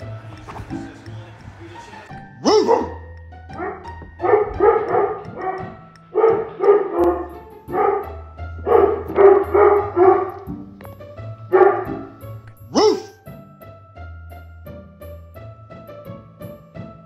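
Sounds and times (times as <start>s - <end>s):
background music: 0.0s - 17.0s
dog barking: 2.4s - 10.6s, 11.5s - 13.2s.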